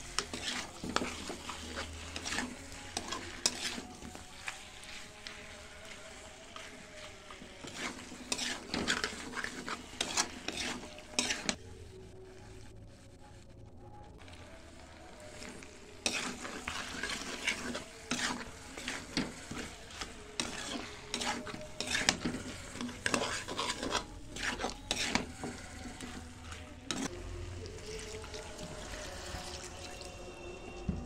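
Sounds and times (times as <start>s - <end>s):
metal spatula scraping pan: 0.0s - 11.6s, 15.2s - 27.1s
food sizzling in pan: 0.0s - 13.0s, 14.2s - 30.2s
water poured into hot pan: 27.4s - 30.2s.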